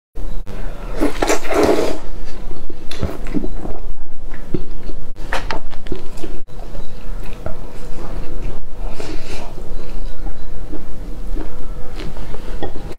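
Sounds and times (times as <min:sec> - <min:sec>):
noodle slurping: 0:00.9 - 0:02.1
chewing with wet mouth sounds: 0:05.7 - 0:12.9.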